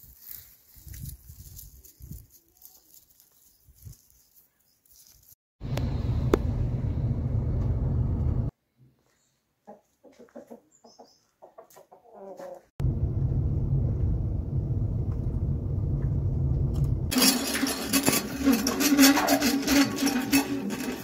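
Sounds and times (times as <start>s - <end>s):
rough noise with low hum: 5.6s - 8.5s, 12.8s - 18.4s
hens clucking: 9.6s - 12.7s.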